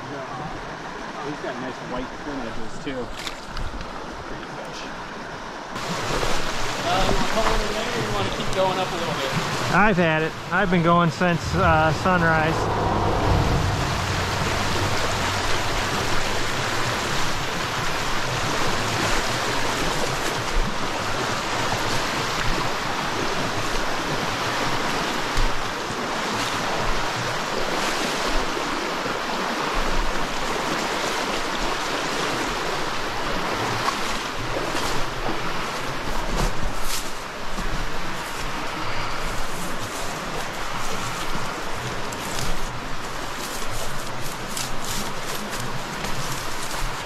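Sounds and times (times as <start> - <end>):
stream water rushing: 0.0 - 47.0
faint low thumps: 11.1 - 17.1.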